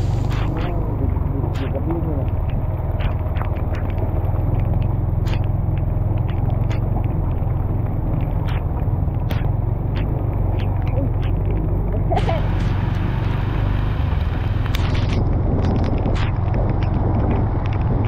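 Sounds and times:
motorbike engine at low revs: 0:00.0 - 0:18.0
sharp knocks and rattles: 0:01.5 - 0:11.6, 0:14.6 - 0:18.0.

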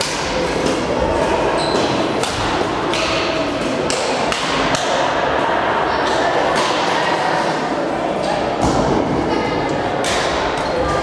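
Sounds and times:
murmur of voices: 0:00.0 - 0:11.0
rackets hitting shuttlecocks: 0:01.7 - 0:05.0.

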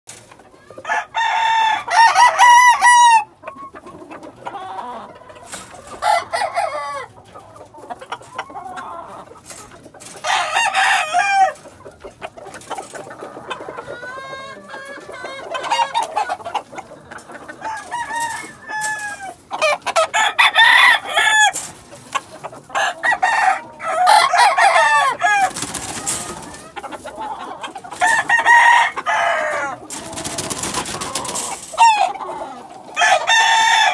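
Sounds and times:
chickens clucking: 0:00.1 - 0:33.9
roosters crowing: 0:00.8 - 0:03.4, 0:04.4 - 0:07.2, 0:10.1 - 0:11.6, 0:17.3 - 0:21.8, 0:22.6 - 0:33.9.

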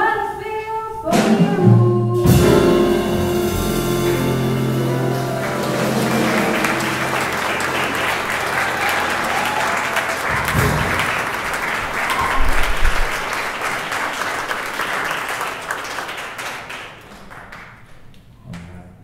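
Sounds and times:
band final chord: 0:02.2 - 0:10.2
audience applauding: 0:04.0 - 0:18.0.

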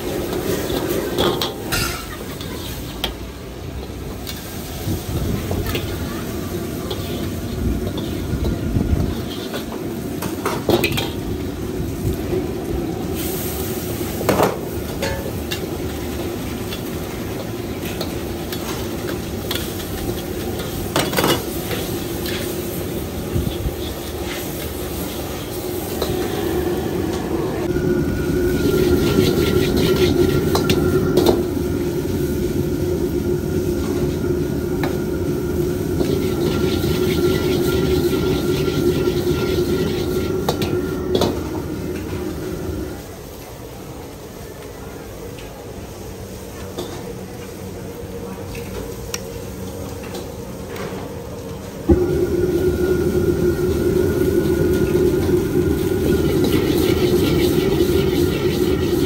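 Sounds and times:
food sizzling in wok: 0:00.0 - 0:59.0
gas burner roar: 0:00.0 - 0:59.0.

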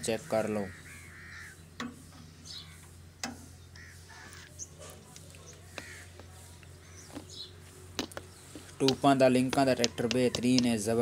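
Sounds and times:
steady low hum: 0:00.0 - 0:11.0
short bird calls: 0:00.2 - 0:04.8.

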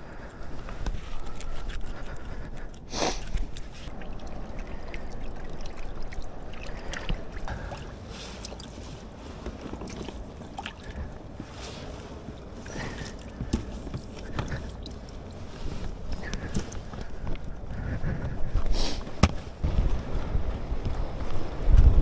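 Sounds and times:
wind rumbling on microphone: 0:00.0 - 0:22.0
fishing gear clicks and knocks: 0:00.4 - 0:04.4, 0:08.2 - 0:17.6
sea washing on rocky shore: 0:03.4 - 0:13.9.

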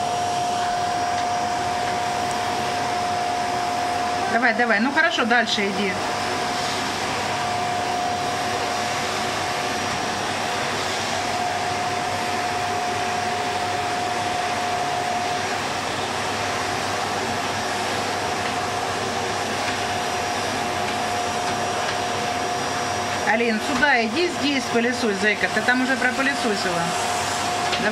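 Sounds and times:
vacuum cleaner running: 0:00.0 - 0:27.9.

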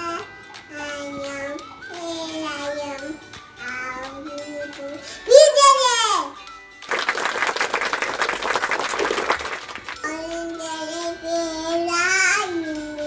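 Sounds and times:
high child-like singing voice: 0:00.0 - 0:06.4, 0:10.0 - 0:13.0
rapid hand clapping: 0:06.8 - 0:10.1.

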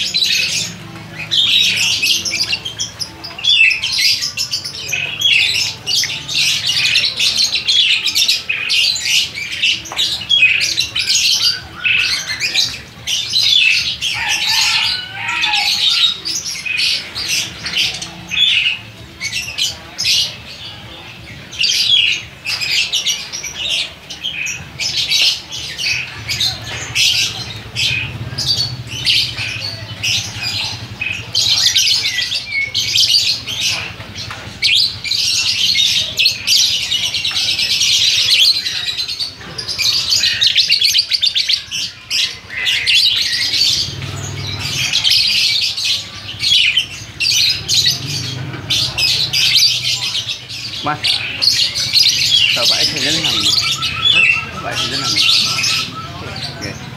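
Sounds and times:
lovebirds chirping and squawking: 0:00.0 - 0:56.9.

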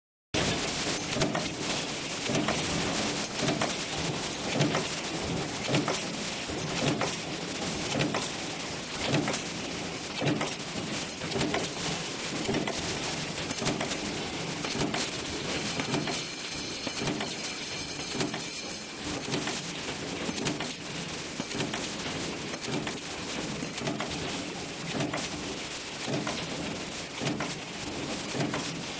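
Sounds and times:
factory noise: 0:00.4 - 0:28.9.

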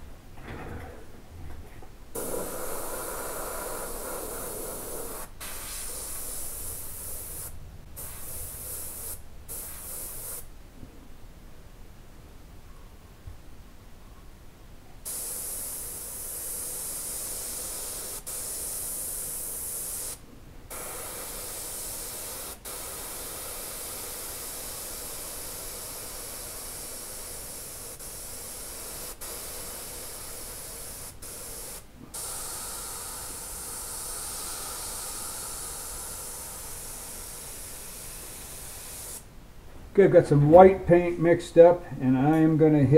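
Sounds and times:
airbrush hissing: 0:02.2 - 0:10.5, 0:15.0 - 0:39.3.

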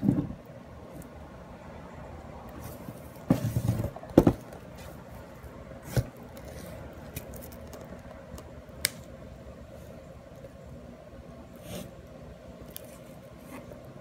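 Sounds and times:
box rustling and bumping: 0:03.2 - 0:04.5.

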